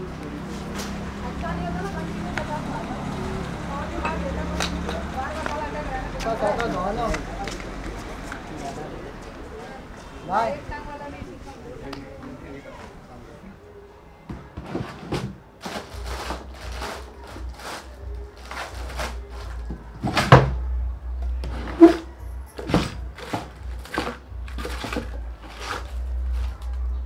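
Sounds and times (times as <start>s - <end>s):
drawer contents clattering: 22.6s - 26.5s.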